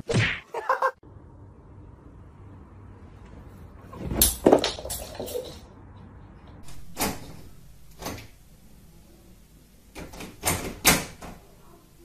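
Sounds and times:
door rattling: 6.6 - 8.4, 9.9 - 11.4.

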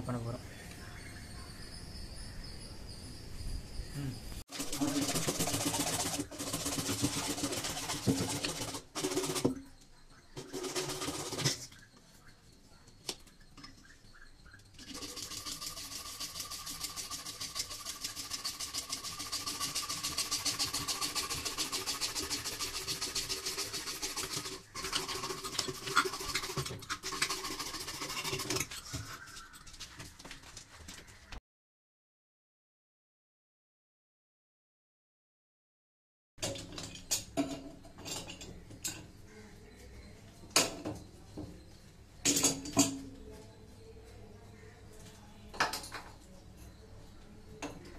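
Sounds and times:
hacksaw sawing through pipe: 4.5 - 9.5, 14.9 - 28.9.

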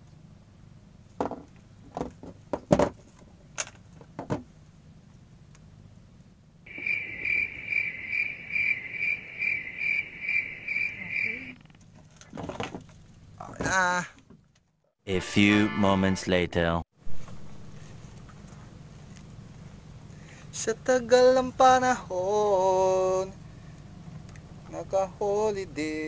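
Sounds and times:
pulsing insect-like chirp: 6.7 - 11.8.

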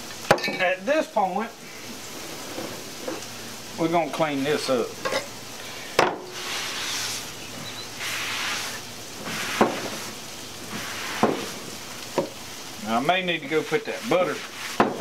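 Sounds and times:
paper towel rubbing wooden board: 6.4 - 7.3, 8.0 - 11.6, 13.6 - 15.0.

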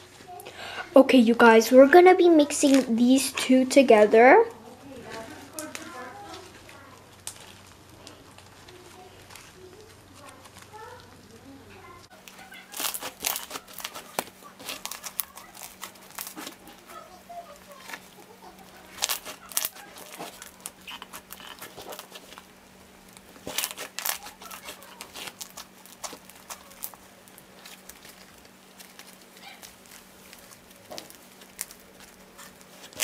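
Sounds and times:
slime squished by hand crackling: 12.2 - 33.0.

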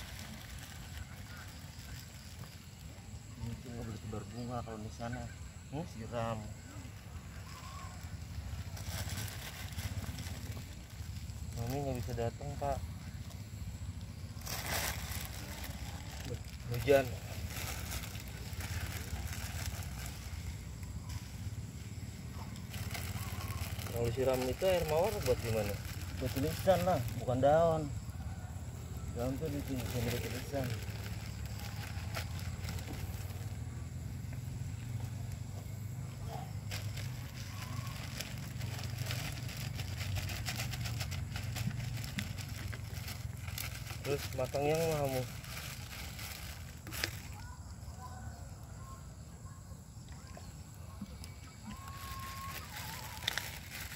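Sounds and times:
plastic bag crinkling: 7.3 - 12.1, 14.4 - 20.6, 22.6 - 27.3, 29.2 - 33.5, 36.6 - 47.5, 51.5 - 53.9.

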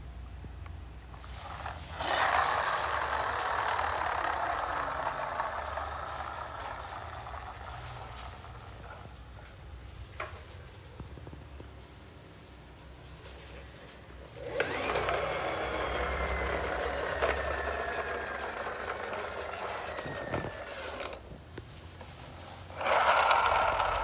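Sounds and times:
toy vehicle whirring: 1.1 - 9.1, 13.5 - 21.4, 22.7 - 24.0
toy truck rolling on tile: 1.1 - 10.4, 13.2 - 21.4, 22.2 - 24.0.

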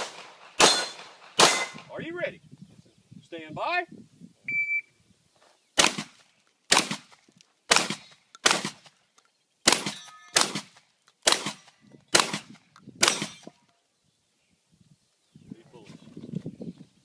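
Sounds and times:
shotgun shots: 0.0 - 1.9, 5.8 - 8.9, 9.6 - 13.5.

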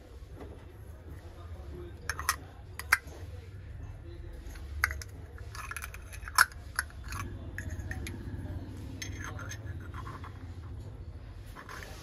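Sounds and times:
handling clicks and knocks: 2.0 - 3.2, 4.8 - 8.2.

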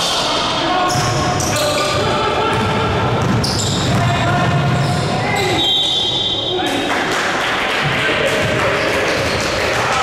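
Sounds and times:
shoe squeaks: 0.9 - 2.0, 3.4 - 4.0
basketball bouncing on gym floor: 2.5 - 5.0.

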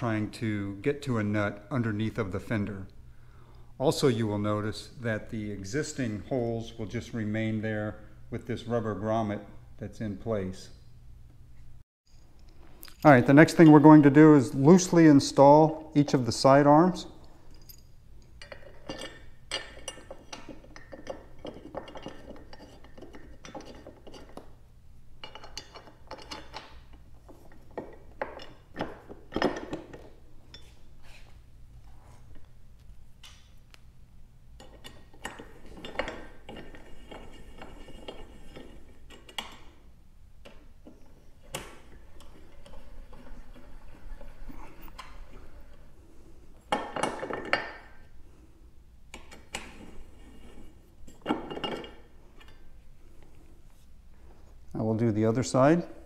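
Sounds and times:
metal hardware clinking: 12.1 - 24.6, 25.2 - 30.9, 34.6 - 39.8, 46.7 - 48.1, 49.1 - 52.8.

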